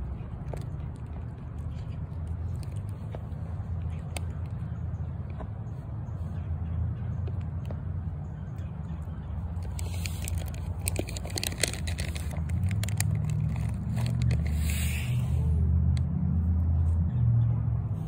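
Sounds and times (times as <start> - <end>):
short hiss: 14.5 - 15.5.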